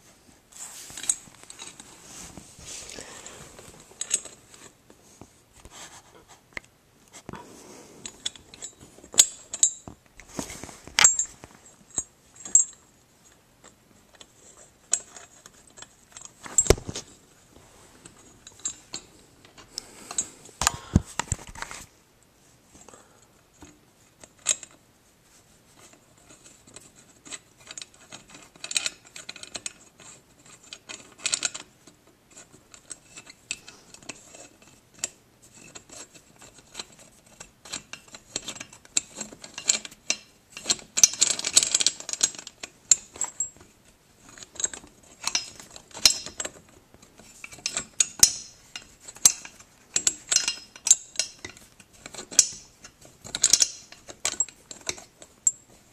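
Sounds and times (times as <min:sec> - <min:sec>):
metal clicks and clinks: 0:44.3 - 0:46.6, 0:47.4 - 0:55.6.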